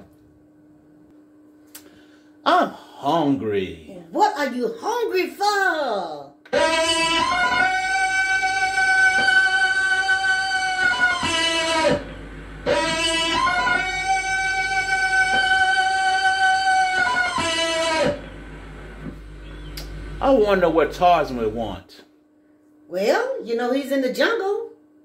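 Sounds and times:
jungle yell cry: 6.5s - 18.4s.

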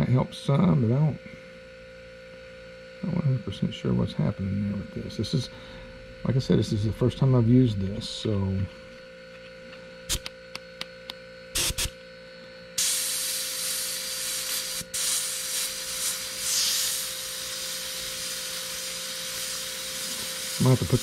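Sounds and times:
airbrush spray hiss: 11.6s - 11.9s, 12.8s - 21.0s.

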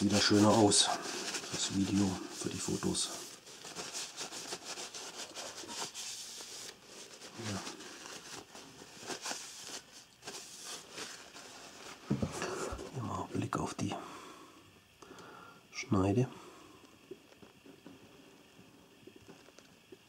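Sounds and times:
paper tissue crinkling on knife blade: 0.0s - 12.0s.

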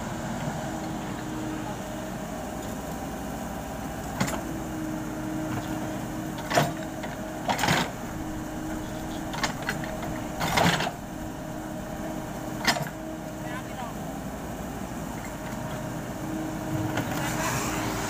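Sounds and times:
excavator running: 0.0s - 18.0s.

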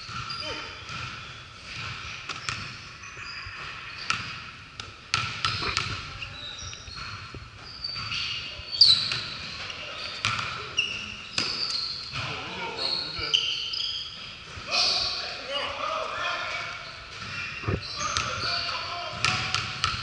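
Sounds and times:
sneaker squeaks: 0.0s - 15.8s, 16.4s - 20.0s
basketball bouncing on hardwood floor: 19.2s - 20.0s.

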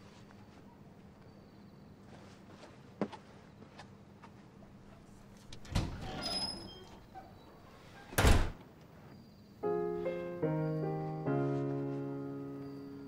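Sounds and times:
soft piano chords: 9.6s - 13.0s.

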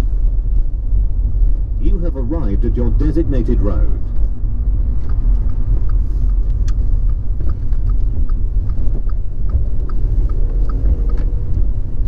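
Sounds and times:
engine and road rumble: 0.0s - 12.0s
light regular ticking: 2.4s - 12.0s.

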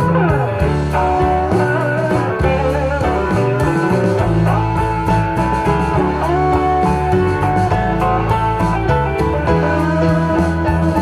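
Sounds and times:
blues guitar music over loudspeakers: 0.0s - 11.0s.

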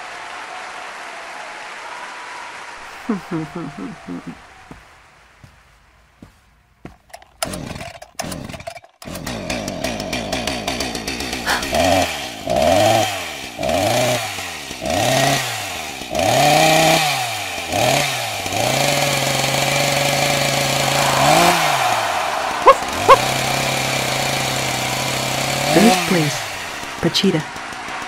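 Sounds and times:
chainsaw engine revving: 7.1s - 28.0s.

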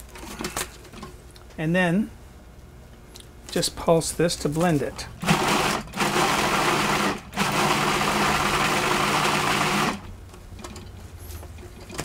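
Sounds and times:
food processor motor running: 5.2s - 10.0s.

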